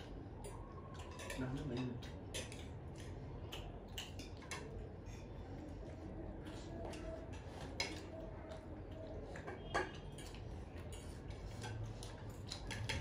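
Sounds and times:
cutlery clinking on dishes: 0:00.4 - 0:04.8, 0:09.2 - 0:13.0.

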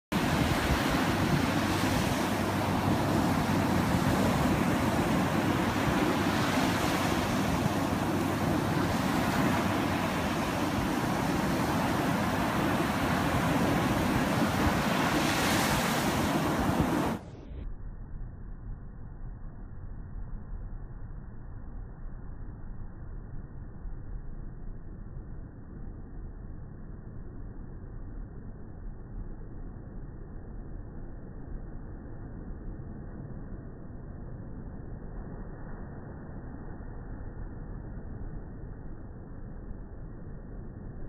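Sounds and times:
surf breaking on sand: 0:00.1 - 0:17.2
wind rumbling on microphone: 0:00.1 - 0:41.0.

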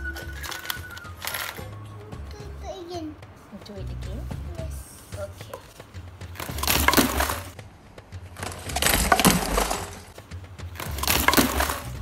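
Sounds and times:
objects rattling in plastic cup: 0:06.4 - 0:07.5.

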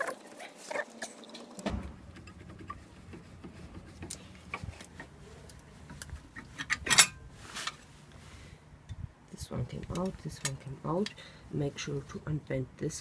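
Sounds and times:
metal scrape: 0:01.0 - 0:07.9.

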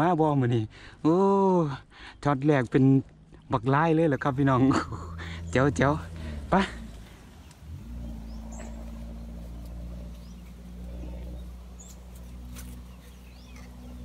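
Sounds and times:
distant engine hum: 0:03.0 - 0:14.0
bird chirps: 0:03.3 - 0:14.0.

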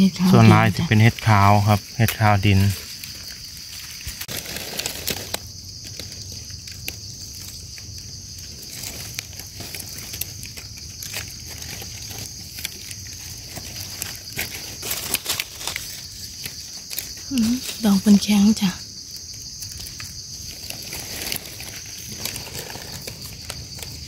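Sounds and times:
high-pitched insect chorus: 0:00.0 - 0:24.0
rustling in dry leaf litter: 0:00.2 - 0:24.0.

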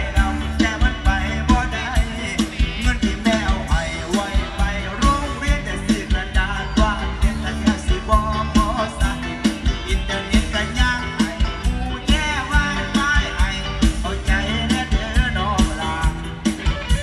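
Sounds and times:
band playing with drum beat: 0:00.0 - 0:17.0
person singing: 0:00.0 - 0:17.0.

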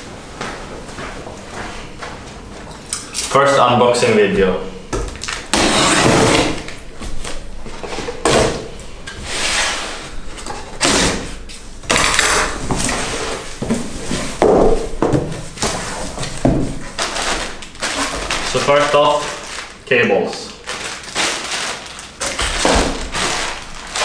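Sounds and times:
packing tape being slit: 0:05.1 - 0:07.4, 0:10.7 - 0:13.0, 0:15.6 - 0:19.8, 0:20.6 - 0:24.0
cardboard scraping and rustling: 0:12.3 - 0:19.3, 0:21.2 - 0:24.0.

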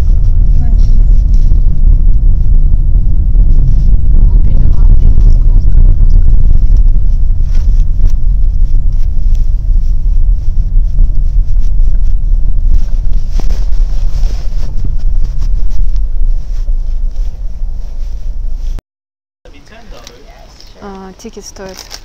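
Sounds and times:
wind buffeting microphone: 0:00.0 - 0:18.8.

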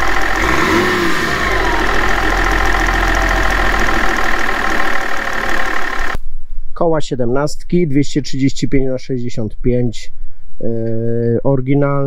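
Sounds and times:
diesel engine idling: 0:00.0 - 0:06.2.

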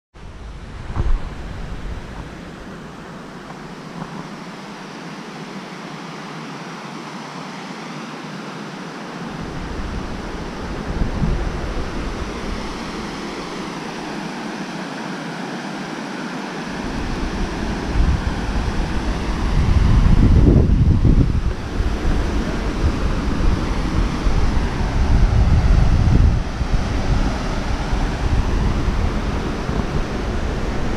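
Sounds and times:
wind buffeting microphone: 0:00.2 - 0:04.9, 0:09.3 - 0:14.4, 0:16.7 - 0:30.9.

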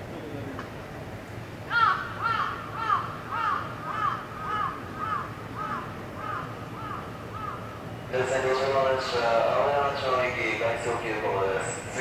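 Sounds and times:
bird calling: 0:01.7 - 0:08.1.

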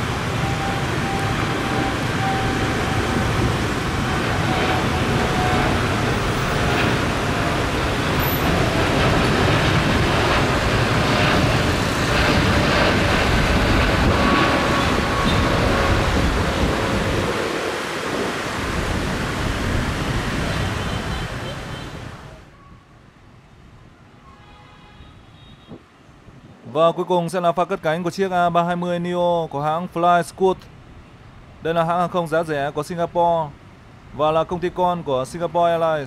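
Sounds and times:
loud jet engine roar: 0:00.0 - 0:22.3.

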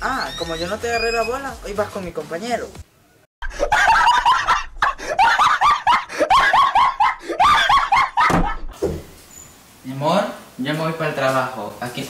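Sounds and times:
high-pitched cackling laugh: 0:03.4 - 0:08.7.

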